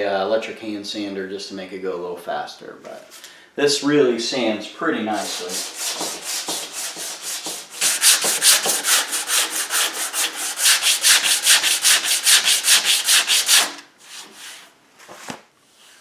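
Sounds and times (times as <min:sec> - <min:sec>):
hand sanding strokes: 0:05.1 - 0:14.8.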